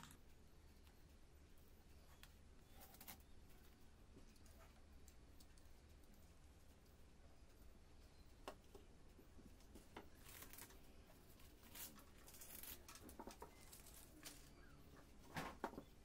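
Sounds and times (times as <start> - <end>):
masking tape tearing and crinkling: 10.1 - 10.8, 11.6 - 14.5.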